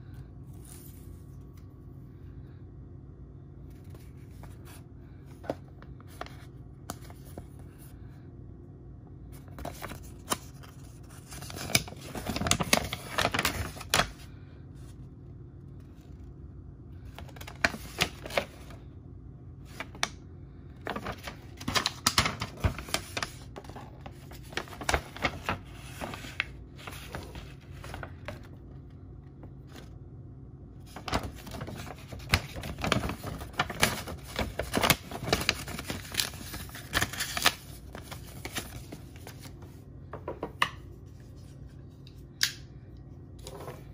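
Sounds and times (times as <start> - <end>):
paper rustling and crinkling: 3.7 - 7.9, 9.3 - 14.3, 17.0 - 18.8, 20.8 - 30.0, 30.8 - 39.8.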